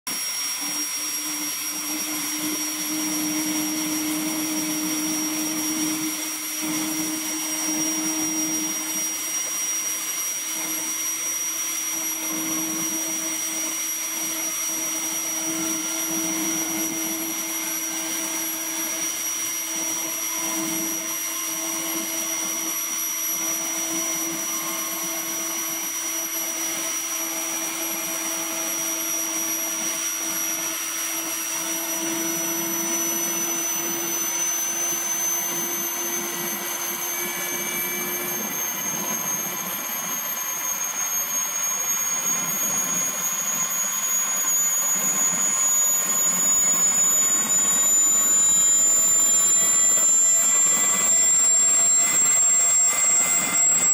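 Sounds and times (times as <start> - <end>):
helicopter turbine whine: 0.1 - 53.9
low hum: 32.3 - 53.9
main rotor spinning up: 32.6 - 53.9.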